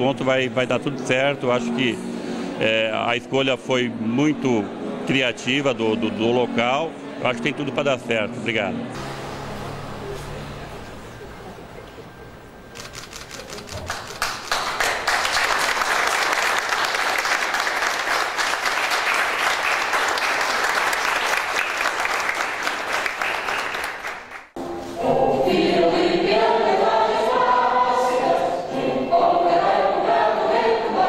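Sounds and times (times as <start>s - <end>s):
crowd applauding: 12.8s - 24.6s
choir singing: 24.6s - 31.0s.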